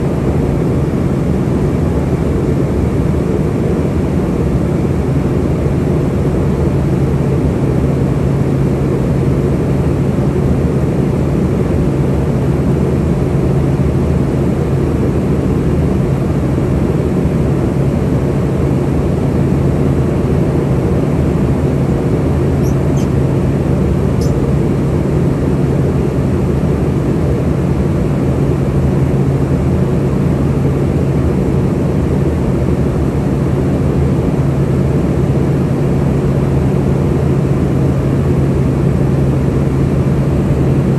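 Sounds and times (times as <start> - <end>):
jet engines: 0.0 - 40.9.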